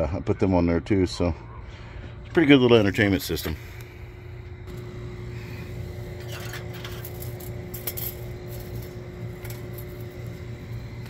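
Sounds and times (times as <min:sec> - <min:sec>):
steady low hum: 0:00.0 - 0:11.0
objects clinking and tapping: 0:06.2 - 0:10.3.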